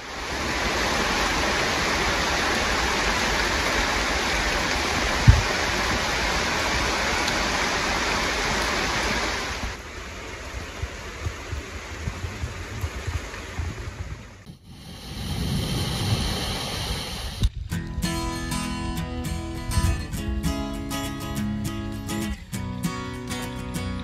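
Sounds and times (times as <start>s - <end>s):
heavy rain on foliage: 0.0s - 14.4s.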